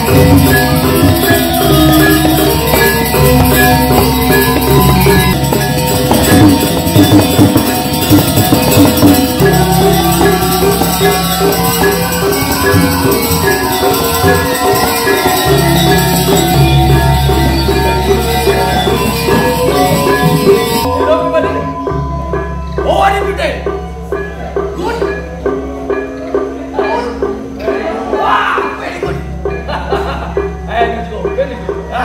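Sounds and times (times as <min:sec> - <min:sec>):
bronze metallophones interlocking notes: 0:00.0 - 0:32.0
deep ringing tones: 0:00.0 - 0:32.0.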